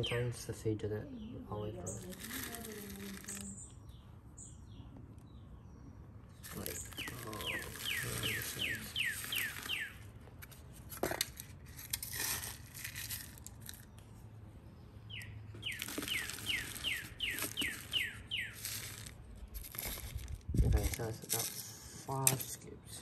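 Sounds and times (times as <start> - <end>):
chicks peeping: 6.5 - 9.9.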